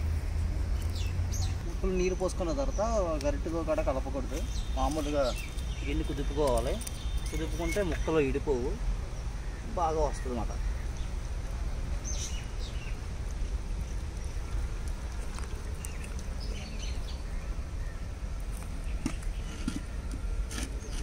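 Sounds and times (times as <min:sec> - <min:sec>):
steady low rumble: 0:00.0 - 0:20.9.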